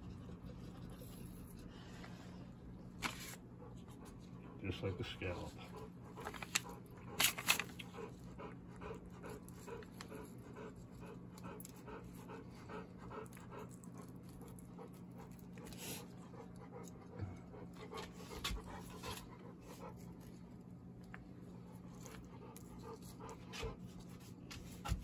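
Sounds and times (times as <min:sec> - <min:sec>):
steady low hum: 0:00.0 - 0:25.0
rapid rhythmic panting: 0:03.4 - 0:20.5.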